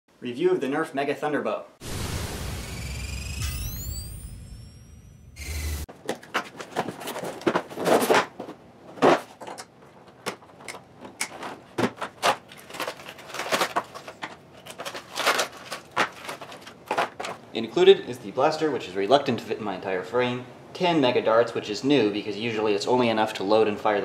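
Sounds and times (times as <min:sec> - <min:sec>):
brief whoosh: 0:01.8 - 0:05.9
cardboard and plastic rustling: 0:05.9 - 0:17.6.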